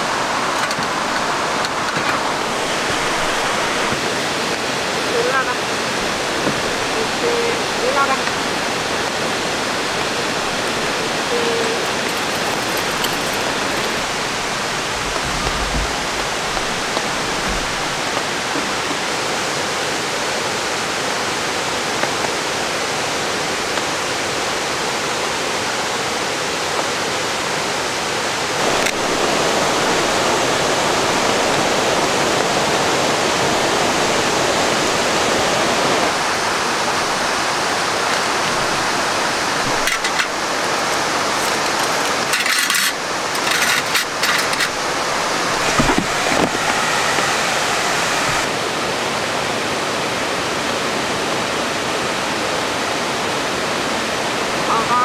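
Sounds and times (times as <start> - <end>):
waterfall and stream rushing: 0.0 - 55.0
scattered clicks and crackles: 0.5 - 2.2, 11.3 - 18.6, 39.6 - 47.3.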